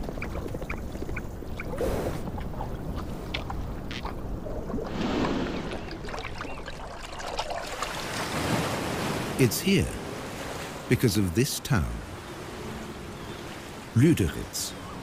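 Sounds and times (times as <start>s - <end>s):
horse sucking and gulping water: 0.0s - 8.4s
water splashes and drips: 2.3s - 9.4s.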